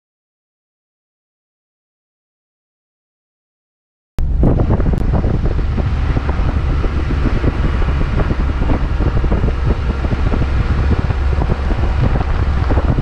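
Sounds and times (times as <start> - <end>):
car road and engine rumble: 4.2 - 13.0
wind buffeting microphone: 4.2 - 13.0.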